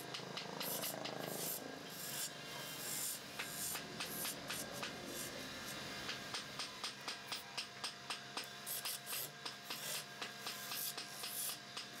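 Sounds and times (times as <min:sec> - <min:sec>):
sharp ticks: 0:00.0 - 0:01.4.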